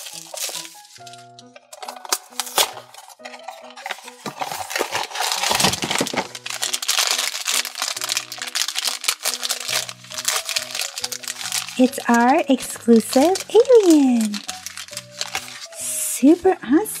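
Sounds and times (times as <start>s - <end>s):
light background music: 0.0s - 17.0s
plastic foil bag crinkling: 0.0s - 17.0s
cardboard box being opened: 3.8s - 7.9s.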